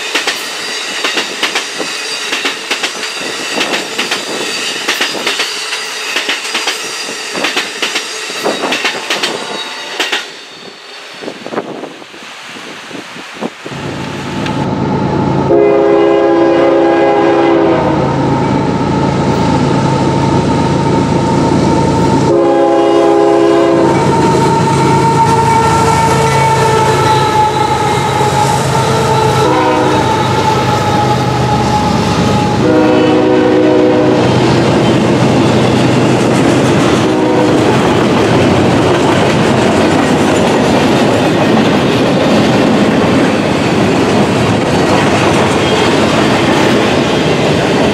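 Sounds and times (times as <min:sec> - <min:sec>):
train wheels clattering: 0:00.0 - 0:10.8, 0:34.2 - 0:47.9
diesel locomotives running: 0:00.0 - 0:47.9
locomotive air horn blasts: 0:15.5 - 0:18.2, 0:22.2 - 0:34.5, 0:37.0 - 0:37.8.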